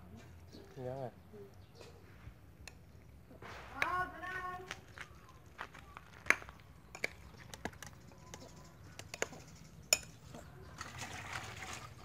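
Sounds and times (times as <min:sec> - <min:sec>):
metal spoon clinking on glass bowl: 0:08.3 - 0:10.2.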